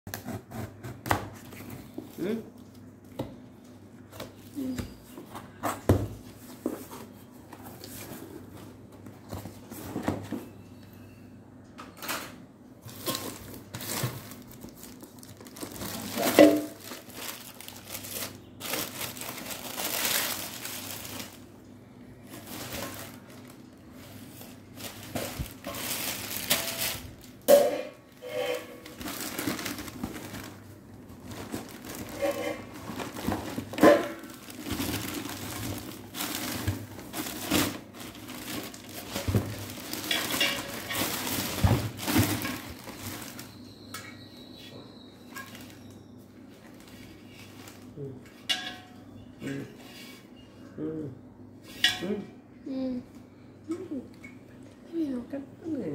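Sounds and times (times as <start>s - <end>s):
paper and plastic wrap rustling: 1.3s - 10.6s, 12.8s - 43.7s, 45.3s - 48.3s.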